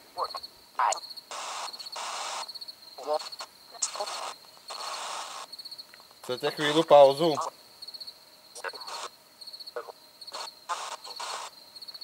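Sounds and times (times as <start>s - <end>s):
cricket chirping: 0.0s - 12.0s
static-like hiss bursts: 0.0s - 12.0s
garbled voice fragments: 3.0s - 4.9s.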